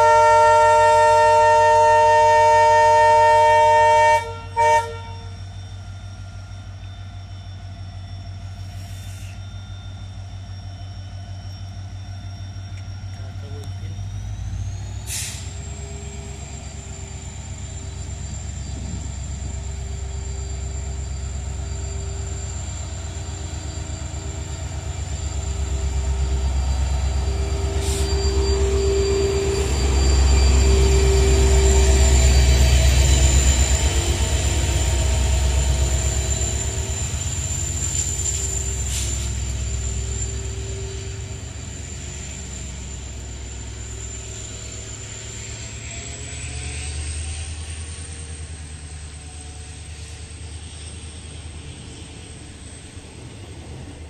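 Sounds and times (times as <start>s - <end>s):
locomotive horn: 0.0s - 5.4s
locomotive engine throb: 0.0s - 54.0s
high whine rising in pitch: 5.2s - 54.0s.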